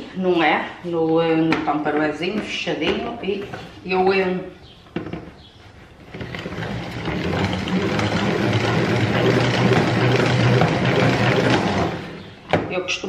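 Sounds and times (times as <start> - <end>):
salad spinner whirring: 6.0 - 12.4.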